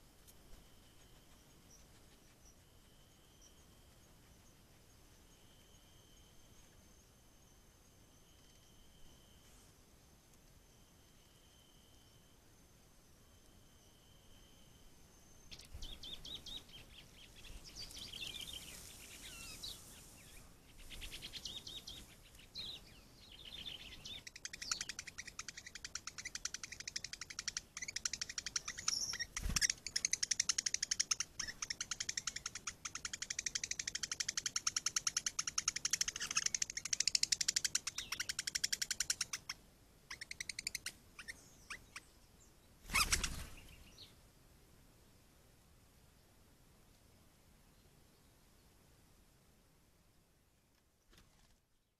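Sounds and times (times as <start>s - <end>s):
small birds chirping: 0.0s - 8.8s, 15.0s - 44.2s.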